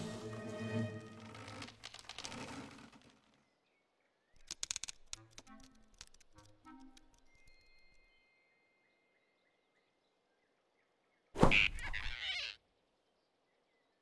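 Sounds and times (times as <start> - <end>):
cartoon whoosh and grab: 11.4 - 12.4.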